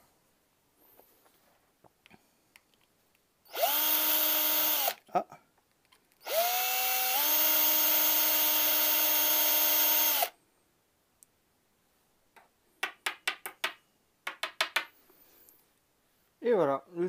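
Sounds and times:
cordless drill on glass: 0:03.5 - 0:05.0, 0:06.2 - 0:10.3.

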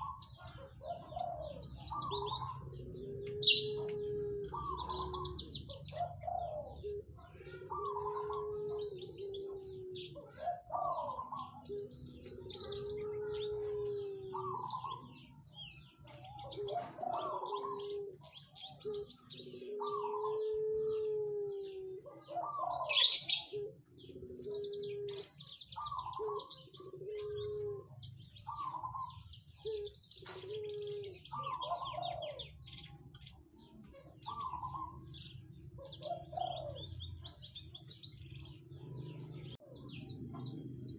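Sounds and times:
bird song with chirps and trills: 0:00.0 - 0:40.9
low drawn-out coo-like notes: 0:00.0 - 0:40.9.

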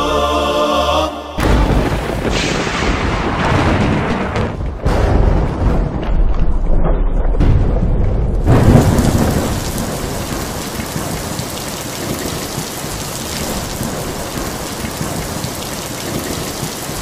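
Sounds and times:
heavy rain falling: 0:01.4 - 0:06.1, 0:08.4 - 0:17.0
low thunder rumble: 0:01.4 - 0:17.0.

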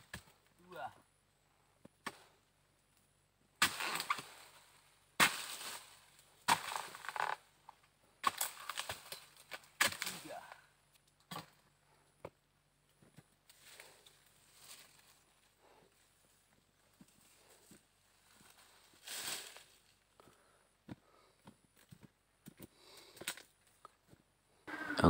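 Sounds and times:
chisel chopping palm fronds: 0:03.6 - 0:04.3, 0:05.2 - 0:05.8, 0:06.4 - 0:07.4, 0:08.2 - 0:10.4.

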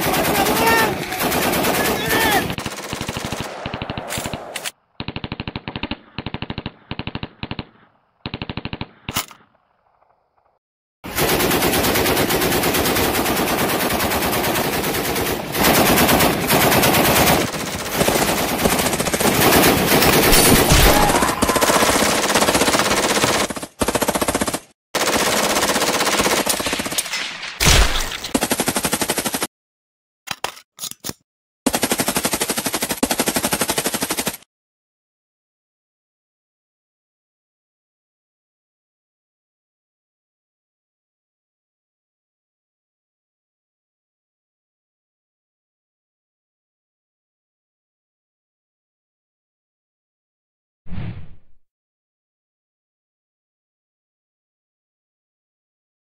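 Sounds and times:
automatic rifle fire: 0:00.2 - 0:09.0, 0:19.7 - 0:22.6.

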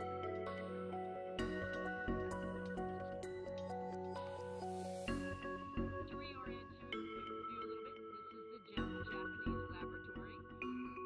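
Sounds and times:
background music held notes: 0:00.0 - 0:06.1.

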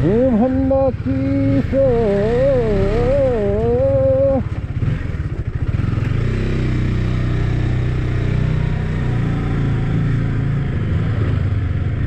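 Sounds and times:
motorcycle engine idling low: 0:00.0 - 0:06.0.

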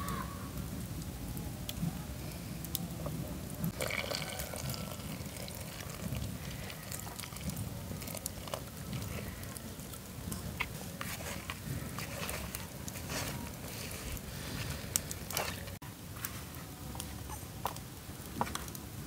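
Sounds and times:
water trickling into bowl: 0:03.7 - 0:13.0.

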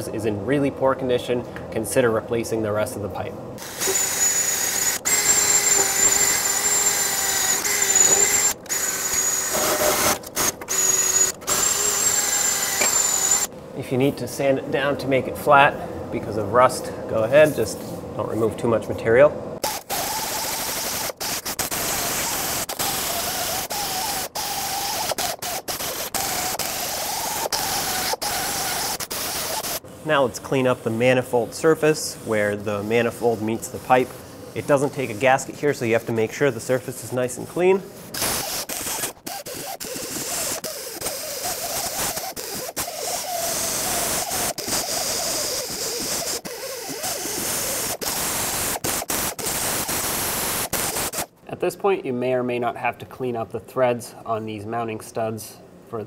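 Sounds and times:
die grinder whining on steel: 0:03.6 - 0:13.5, 0:19.6 - 0:29.8.

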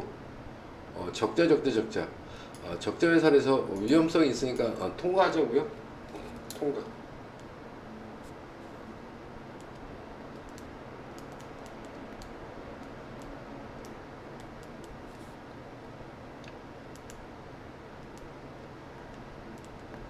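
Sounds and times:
steady background hiss: 0:00.0 - 0:20.0
mouse clicks: 0:16.4 - 0:17.2.

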